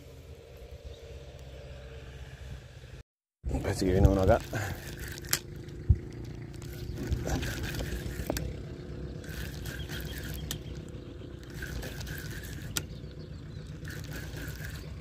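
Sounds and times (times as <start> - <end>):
fishing reel clicks: 4.3 - 8.5, 9.2 - 15.0.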